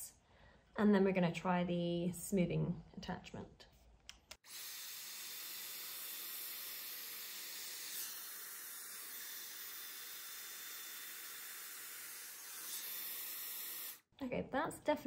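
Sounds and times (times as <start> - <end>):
hair styler blowing air: 4.4 - 14.0.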